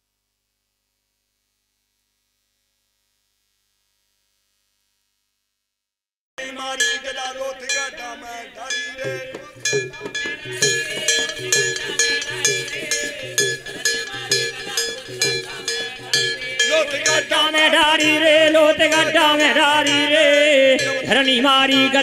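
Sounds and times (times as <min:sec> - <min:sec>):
dholak drum: 0:06.4 - 0:22.0
person singing: 0:06.4 - 0:22.0
brass plate struck with a stick: 0:06.8 - 0:17.4.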